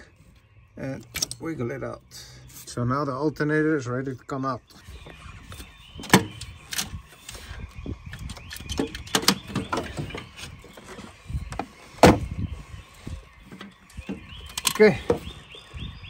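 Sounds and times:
metallic knocks and clunks: 0:06.0 - 0:07.0, 0:08.1 - 0:12.4.

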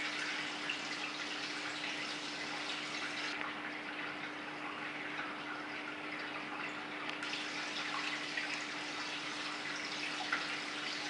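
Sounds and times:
aquarium water trickling and splashing: 0:00.0 - 0:11.0.

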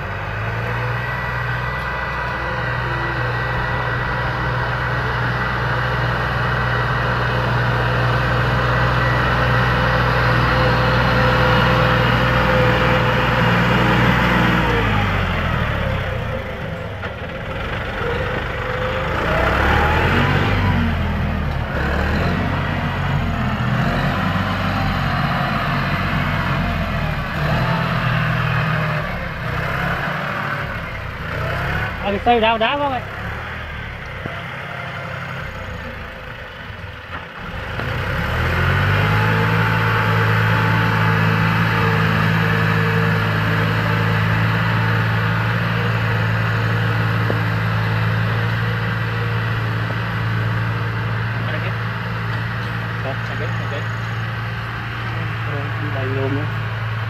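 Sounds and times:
tractor diesel engine under load: 0:00.0 - 0:57.0.

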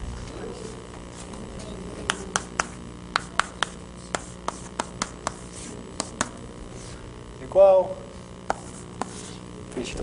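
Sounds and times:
chalk tapping on blackboard: 0:02.0 - 0:06.9, 0:08.4 - 0:09.4.

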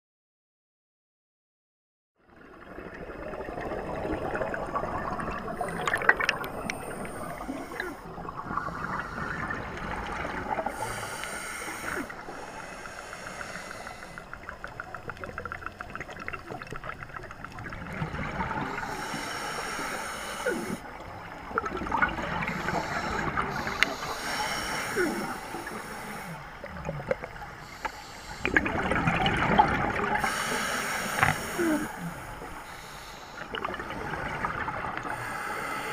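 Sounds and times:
exhaled bubbles rushing: 0:02.3 - 0:10.9, 0:14.3 - 0:19.0, 0:20.9 - 0:24.1, 0:28.4 - 0:30.4, 0:33.4 - 0:35.2
regulator breathing underwater: 0:05.6 - 0:14.6, 0:18.2 - 0:21.1, 0:21.9 - 0:29.1, 0:30.0 - 0:35.9.

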